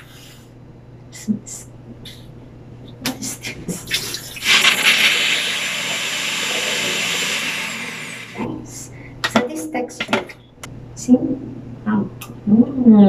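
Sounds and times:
food processor whirring: 0:04.4 - 0:08.6.

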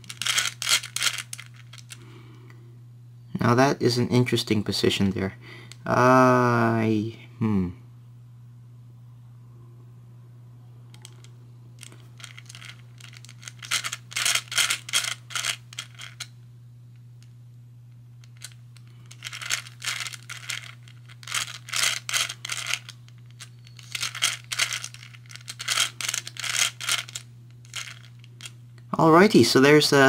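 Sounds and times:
puzzle balls clicking: 0:00.0 - 0:02.0, 0:10.9 - 0:16.3, 0:18.2 - 0:28.9.

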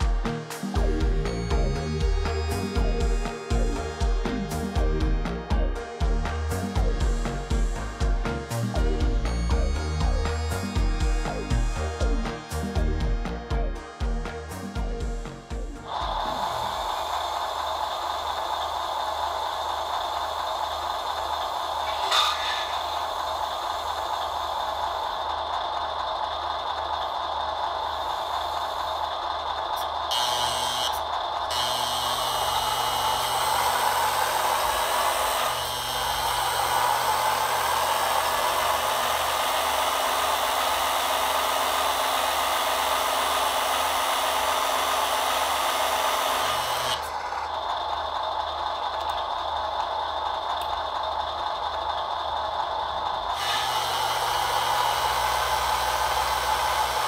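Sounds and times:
hydraulic pump whirring: 0:00.0 - 0:57.0.

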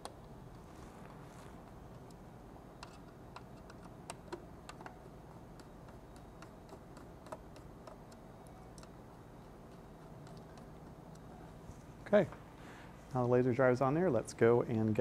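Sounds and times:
low steady hum: 0:00.0 - 0:15.0
screwdriver clicks and ticks: 0:02.8 - 0:11.3.

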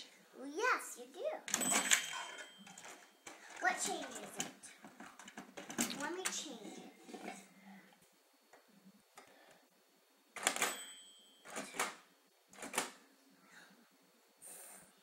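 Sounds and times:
toy cash register clunks: 0:01.5 - 0:07.4, 0:10.4 - 0:13.0.

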